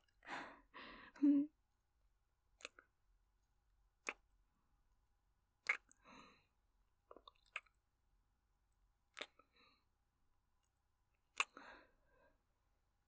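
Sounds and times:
soft breath: 0:00.2 - 0:01.4.

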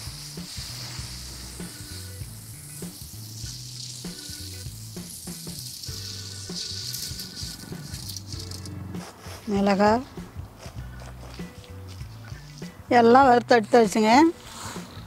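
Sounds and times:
grains pouring rustling: 0:00.0 - 0:09.3
background music: 0:00.0 - 0:15.0.

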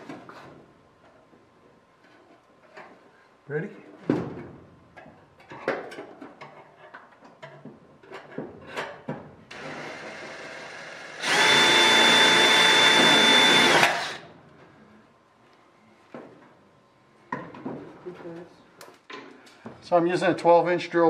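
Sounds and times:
drill whining through metal: 0:09.5 - 0:14.3.

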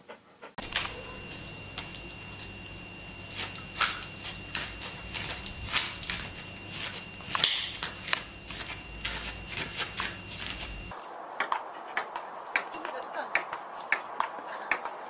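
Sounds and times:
dog paws on doormat: 0:08.5 - 0:15.0.

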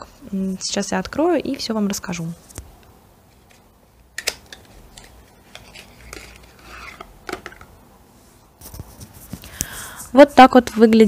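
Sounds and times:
packaging rustling: 0:03.3 - 0:07.7.

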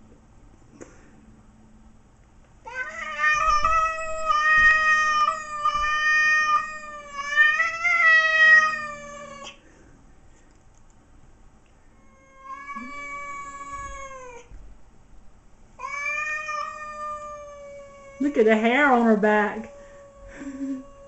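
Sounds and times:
cat yowling: 0:02.7 - 0:09.6, 0:12.0 - 0:14.6, 0:15.8 - 0:18.2.

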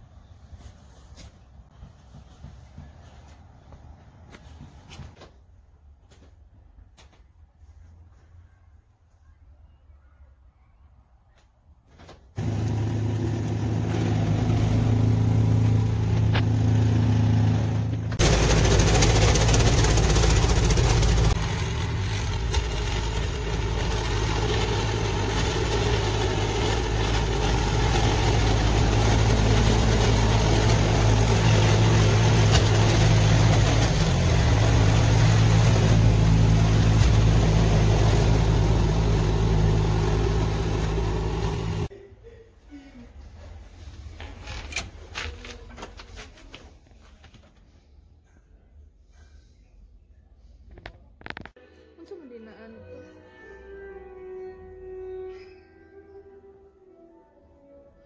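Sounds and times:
rush of snow clearing noise: 0:12.4 - 0:41.9
snowblower engine running: 0:12.4 - 0:41.9.

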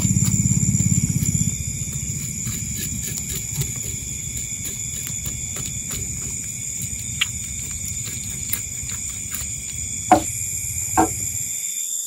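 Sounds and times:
night insects droning: 0:00.0 - 0:12.0
knife knocking on wooden plank: 0:10.1 - 0:11.4.

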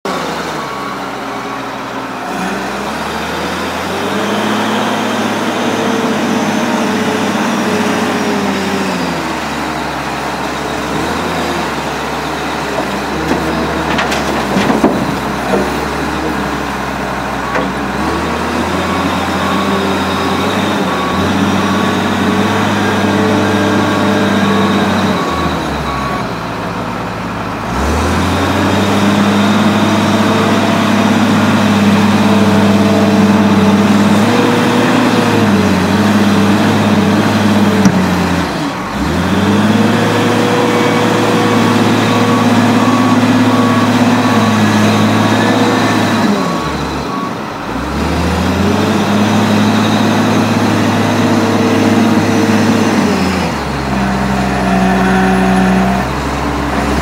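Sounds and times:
diesel engine revving: 0:00.1 - 0:57.0
dirt and stones dropping into steel: 0:12.8 - 0:16.5.

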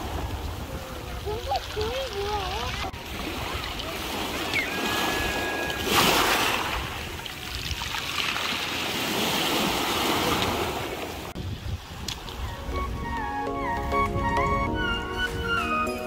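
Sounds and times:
waves washing over pebbles: 0:00.0 - 0:12.5.

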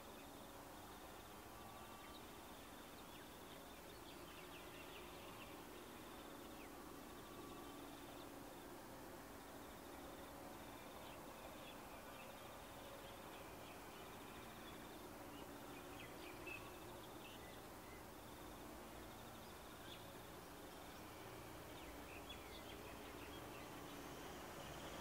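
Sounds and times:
insects chirping: 0:00.0 - 0:25.0
distant train hum: 0:05.5 - 0:25.0.

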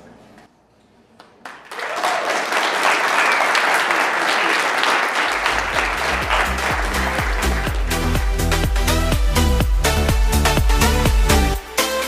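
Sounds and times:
audience applauding: 0:01.4 - 0:09.0
electronic music with bass beat: 0:05.5 - 0:12.0.

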